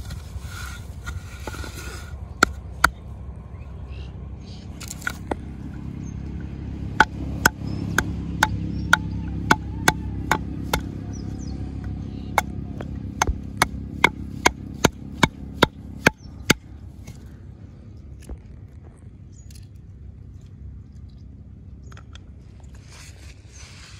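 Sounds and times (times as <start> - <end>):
knocks on wooden board: 9.5 - 10.9.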